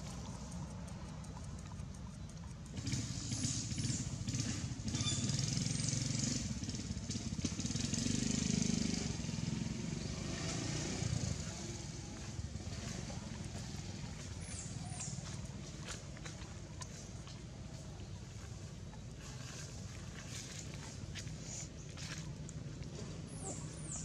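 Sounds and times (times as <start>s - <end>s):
low engine rumble: 0.0s - 24.0s
short high squeaks: 4.9s - 5.4s.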